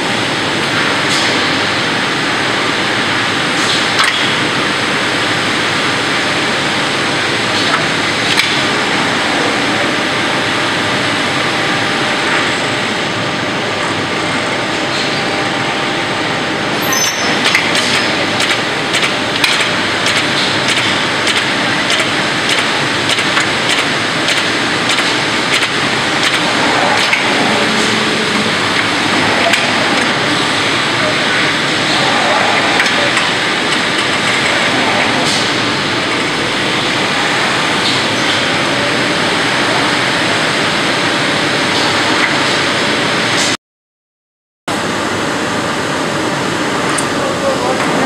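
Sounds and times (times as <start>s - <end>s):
steady machinery noise: 0.0s - 43.6s, 44.7s - 48.0s
sharp clicks and knocks: 17.4s - 27.2s.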